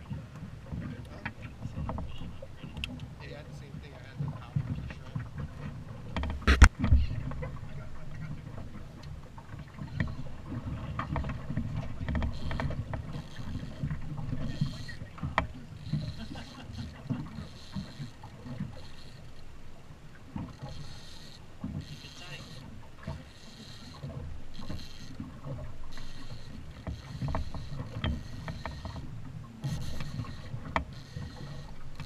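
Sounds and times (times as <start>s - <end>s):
water lapping: 0.0s - 32.0s
light clicks and taps: 0.3s - 3.8s
sharp knock on boat: 6.1s - 7.2s.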